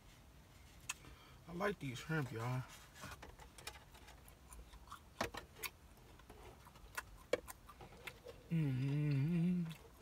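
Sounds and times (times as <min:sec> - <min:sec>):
chewing with wet mouth clicks: 0:04.2 - 0:05.8, 0:06.5 - 0:10.0
person humming: 0:08.4 - 0:10.0.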